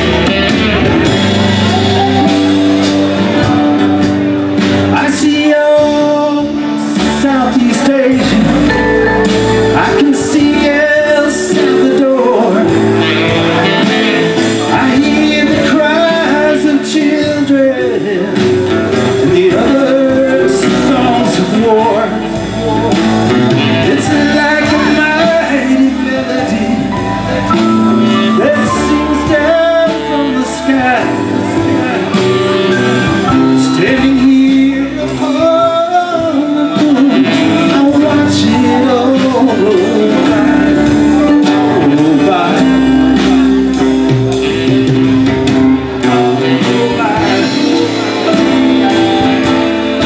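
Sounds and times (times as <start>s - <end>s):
saxophone: 0.0s - 4.7s, 8.2s - 35.3s
acoustic and electric guitars: 0.0s - 50.0s
drums: 0.0s - 50.0s
keyboard: 0.0s - 50.0s.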